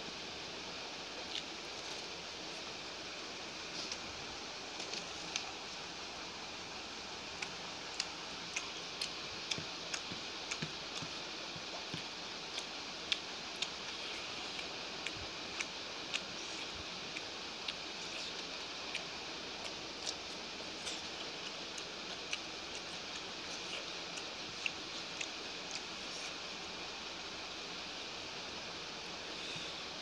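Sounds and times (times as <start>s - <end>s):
steady hiss: 0.0s - 30.0s
chewing: 1.2s - 2.8s, 7.3s - 26.6s.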